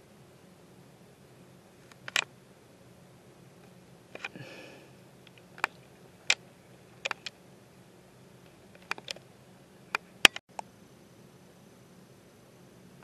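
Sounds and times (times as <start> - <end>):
faint low hum: 0.0 - 13.0
sharp clicks: 7.0 - 7.4.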